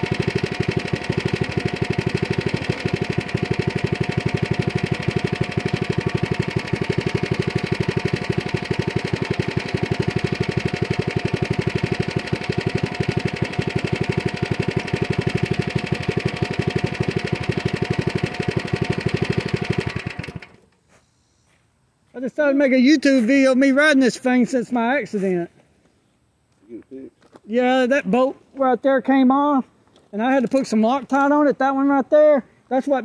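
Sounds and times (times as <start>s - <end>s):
small engine idling: 0.0s - 20.8s.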